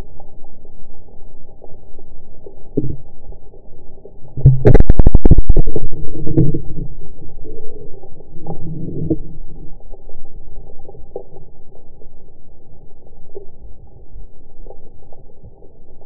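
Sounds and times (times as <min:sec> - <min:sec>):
muffled underwater rumble: 0:00.0 - 0:16.0.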